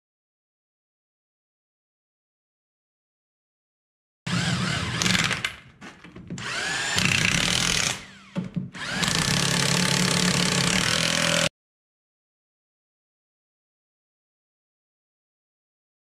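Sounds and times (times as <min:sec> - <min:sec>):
electric impact wrench hammering: 0:04.3 - 0:05.6, 0:06.3 - 0:11.5.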